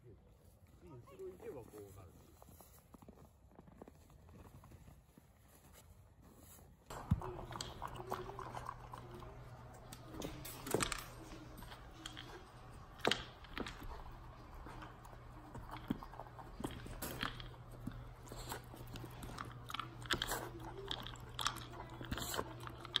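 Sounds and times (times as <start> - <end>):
puppy crunching and chewing food: 6.9 - 23.0.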